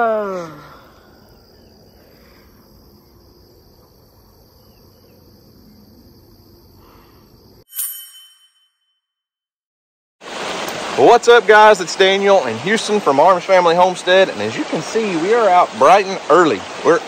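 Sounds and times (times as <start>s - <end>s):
insects chirring: 0.0s - 7.6s.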